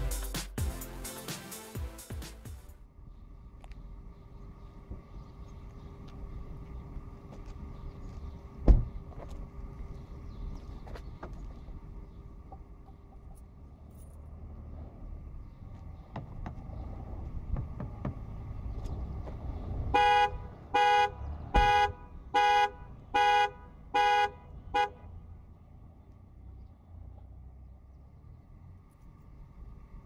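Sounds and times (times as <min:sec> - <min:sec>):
car alarm horn blasts: 0:19.9 - 0:25.1.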